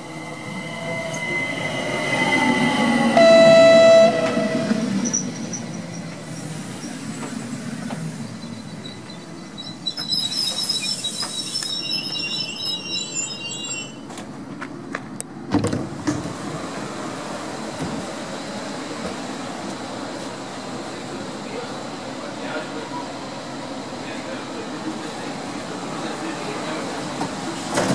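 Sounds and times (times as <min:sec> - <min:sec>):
train noise: 0:00.0 - 0:27.9
loud steady horn-like tone: 0:03.1 - 0:04.8.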